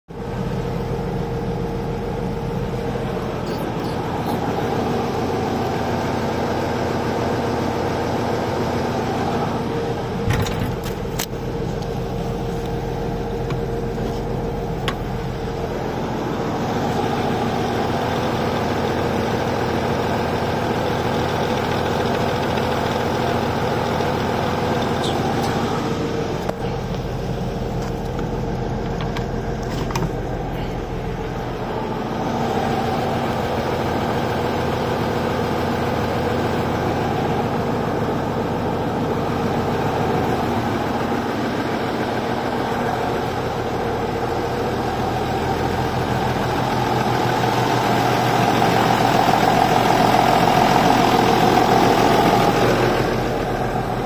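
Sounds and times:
tractor diesel engine running: 0.1s - 54.0s.

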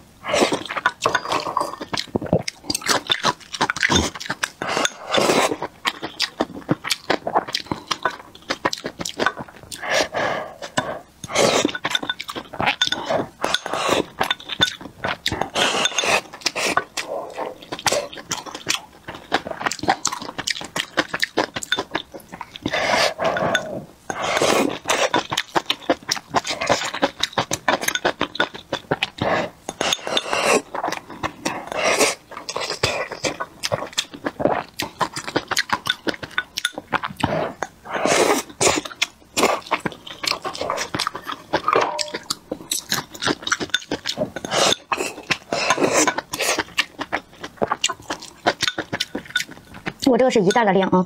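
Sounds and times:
slurping and chewing: 0.0s - 51.0s
chopsticks clinking on bowl: 11.6s - 14.9s, 40.3s - 46.7s, 48.1s - 49.6s.

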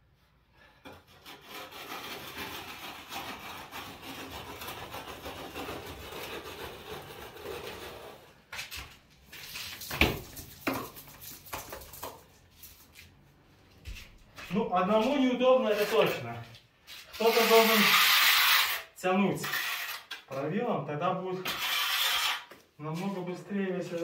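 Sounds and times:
rule scraping wet plaster: 0.9s - 8.4s, 15.0s - 16.3s, 16.9s - 20.5s, 21.3s - 23.2s.

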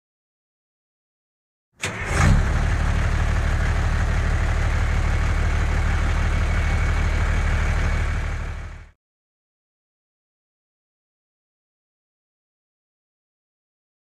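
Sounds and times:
large engine throbbing: 1.8s - 9.0s.

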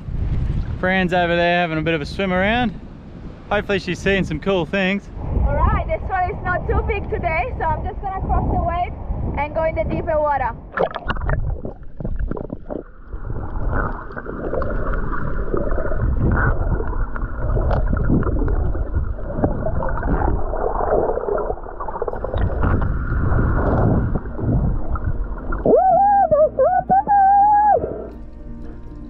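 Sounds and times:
underwater churning waves: 5.1s - 28.2s
wavering held tone: 22.0s - 29.0s.

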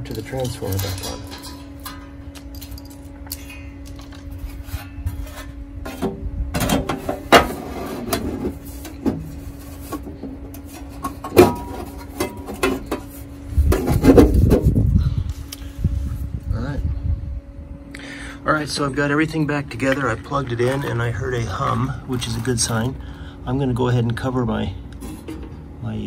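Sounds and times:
steady low hum: 0.0s - 26.0s
sheet metal scraping and clanking: 0.1s - 13.2s.

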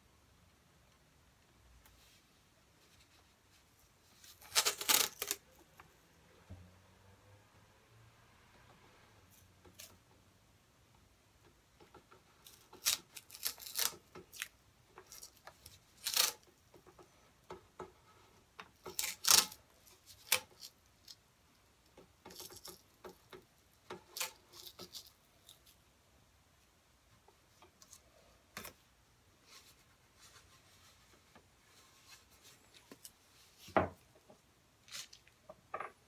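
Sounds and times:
masking tape pulled off roll: 4.2s - 5.4s, 12.5s - 14.6s, 15.2s - 16.5s, 18.9s - 20.7s.

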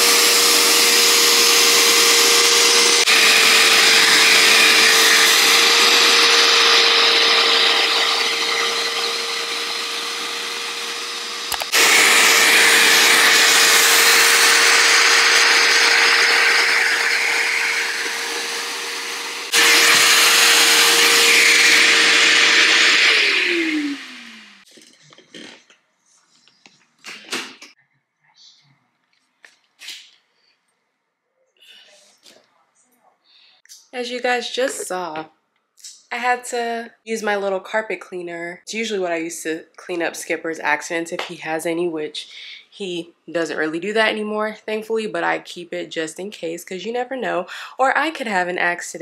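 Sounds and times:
carpet cleaner motor whining: 0.0s - 24.6s.

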